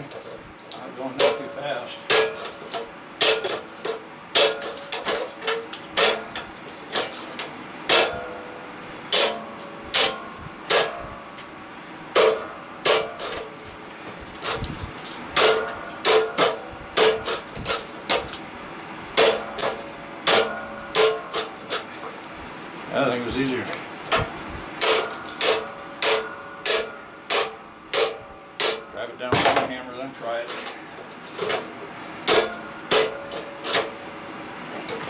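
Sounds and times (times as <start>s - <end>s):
hammer striking metal plate: 1.2s - 6.4s, 7.9s - 8.5s, 9.1s - 11.1s, 12.2s - 13.5s, 15.4s - 18.2s, 19.2s - 21.5s, 24.8s - 29.7s, 32.2s - 33.9s.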